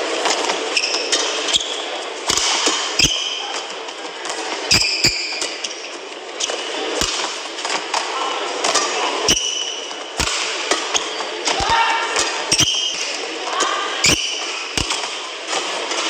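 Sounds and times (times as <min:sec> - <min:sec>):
shoes squeaking on court: 0:00.0 - 0:13.3, 0:14.0 - 0:16.0
racket hitting shuttlecock: 0:02.2 - 0:05.7, 0:06.4 - 0:13.2, 0:14.0 - 0:16.0.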